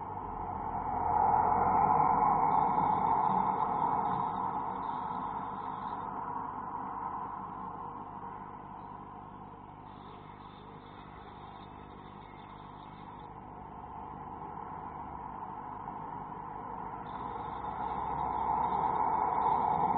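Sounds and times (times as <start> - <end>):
steady rushing noise: 0.0 - 8.4, 14.2 - 19.9
low hum: 0.0 - 19.9.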